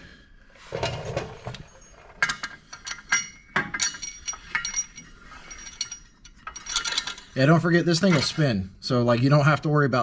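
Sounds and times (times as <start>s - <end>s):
metal clinks and ringing taps: 1.8s - 7.0s.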